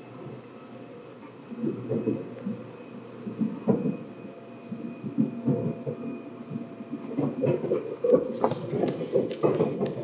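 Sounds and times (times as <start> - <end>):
faint steady whine: 0.0 - 10.0
train thumping and rumbling: 3.3 - 10.0.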